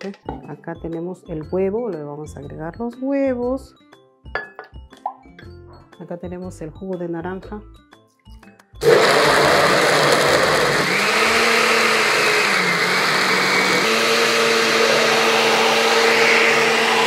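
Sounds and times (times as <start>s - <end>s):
blender motor whine: 8.8s - 17.0s.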